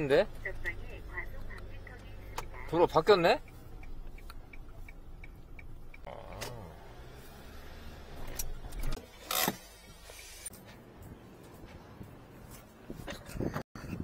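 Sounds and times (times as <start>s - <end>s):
low engine and road hum: 0.0s - 14.0s
power window motor: 6.1s - 10.5s.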